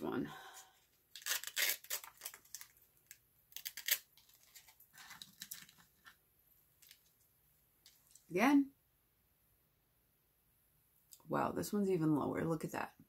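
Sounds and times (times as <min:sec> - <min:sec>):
plastic tub crinkling and clicking: 0:02.3 - 0:06.2.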